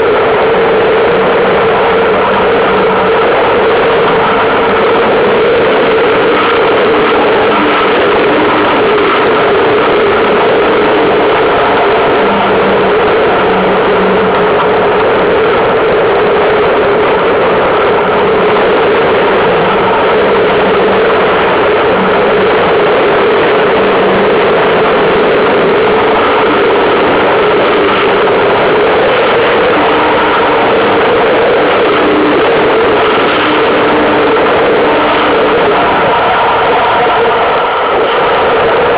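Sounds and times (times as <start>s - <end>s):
water rushing along hull: 0.0s - 38.9s
wind buffeting microphone: 0.0s - 38.9s.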